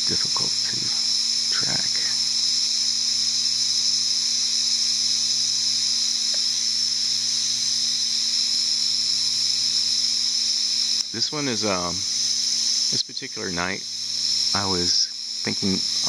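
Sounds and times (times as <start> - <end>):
faint low hum: 0.0 - 2.3
lawn sprinklers spraying water: 3.1 - 16.0.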